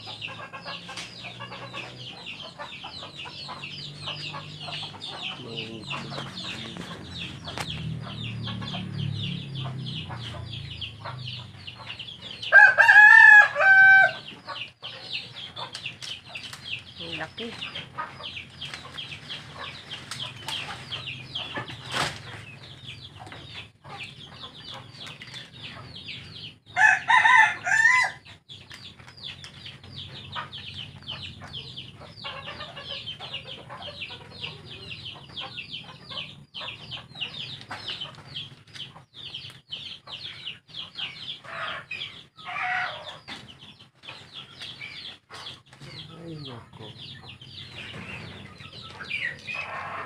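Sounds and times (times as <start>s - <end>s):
chicks peeping: 0.0s - 50.0s
rooster crowing: 12.4s - 14.3s, 26.8s - 28.2s.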